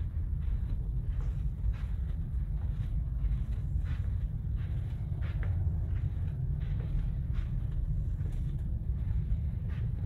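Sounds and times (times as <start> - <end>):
low engine rumble: 0.0 - 10.0
soft footsteps on carpet: 0.0 - 10.0.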